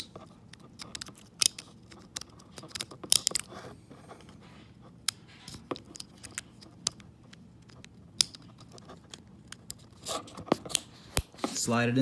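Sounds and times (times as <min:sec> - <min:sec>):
plastic connector clicking and scraping: 0:00.0 - 0:03.7, 0:05.0 - 0:11.6.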